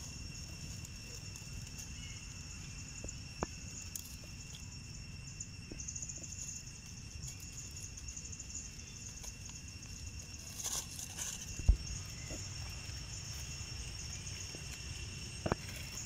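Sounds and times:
faint ticks and rustles: 0.0s - 16.0s
fast pulsing insect trill: 0.0s - 16.0s
insects shrilling: 0.0s - 16.0s.

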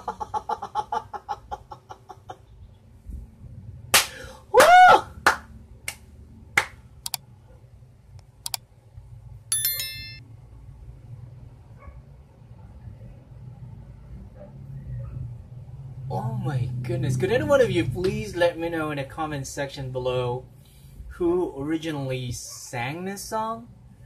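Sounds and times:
hand claps: 3.9s - 6.8s
short bright tone: 9.5s - 10.2s.

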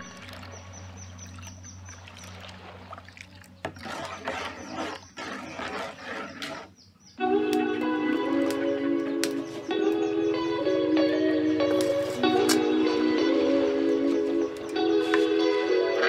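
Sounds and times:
ladle stirring liquid in metal pot: 1.3s - 6.8s.

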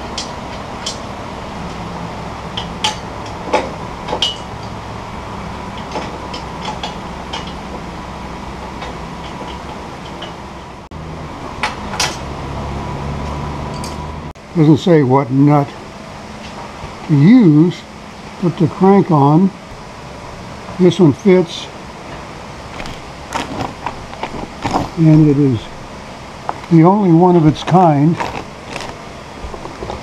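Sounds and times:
steady low hum: 0.0s - 30.0s
metallic clinks of steel parts: 2.5s - 4.8s, 5.7s - 7.8s, 13.2s - 14.1s.

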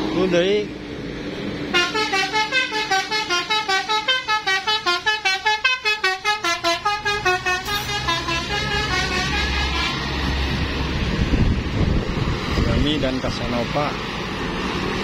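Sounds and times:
musical air horn melody: 1.7s - 10.2s.

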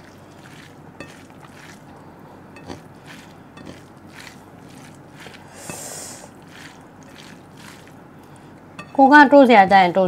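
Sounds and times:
fingers squishing wet rice: 0.0s - 2.0s, 2.6s - 8.4s.

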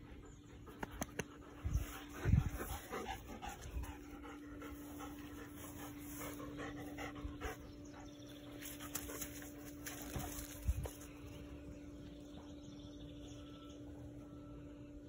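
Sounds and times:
dog panting: 0.0s - 9.5s.

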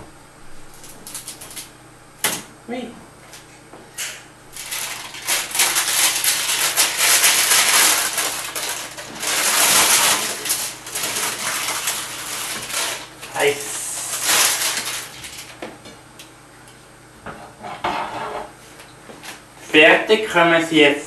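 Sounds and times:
baking paper crinkling: 4.5s - 15.7s.

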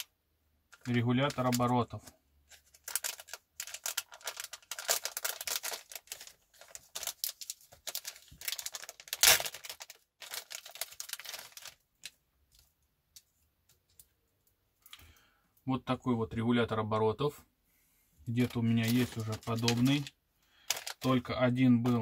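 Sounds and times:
plastic packaging crinkling: 0.7s - 1.9s, 2.5s - 13.3s, 18.4s - 22.0s.

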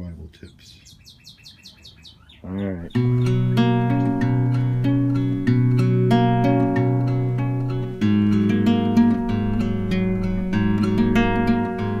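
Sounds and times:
strummed acoustic guitar: 2.9s - 12.0s.

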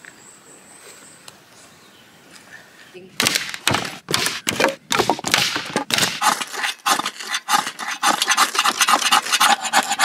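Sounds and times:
ferro rod scraping: 3.5s - 10.0s.

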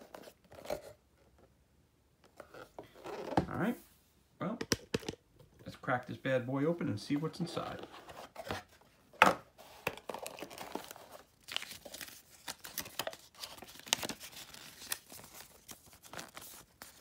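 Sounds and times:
paper crinkling and rustling: 9.7s - 17.0s.

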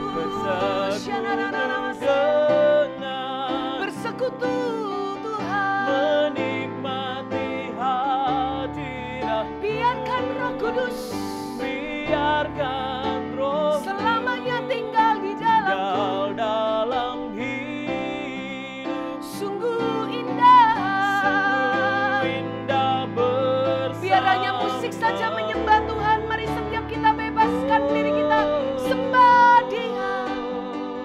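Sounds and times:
man and woman singing: 0.0s - 31.0s.

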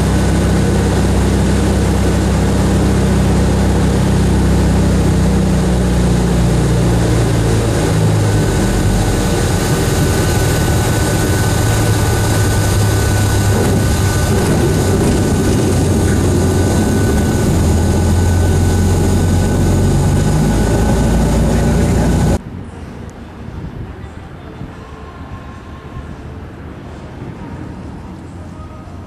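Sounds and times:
aircraft piston engine and propeller: 0.0s - 22.4s.

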